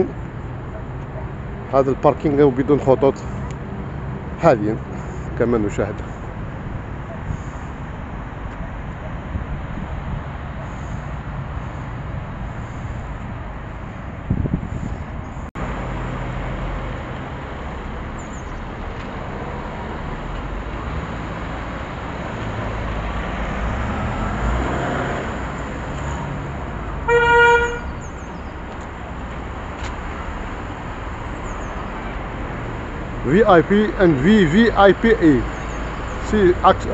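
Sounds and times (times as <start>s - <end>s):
road traffic passing: 0.0s - 36.9s
car passing by: 18.8s - 34.5s
short car horn toot: 27.1s - 27.9s.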